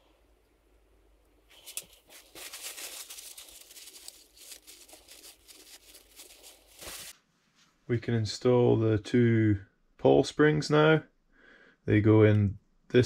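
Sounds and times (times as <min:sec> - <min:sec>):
paper towel rustling and crinkling: 0:01.5 - 0:07.8.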